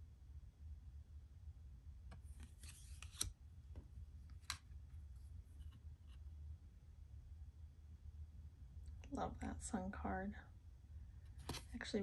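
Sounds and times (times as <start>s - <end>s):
card sliding on card: 2.3s - 3.3s
sharp card clicks: 2.4s - 3.3s.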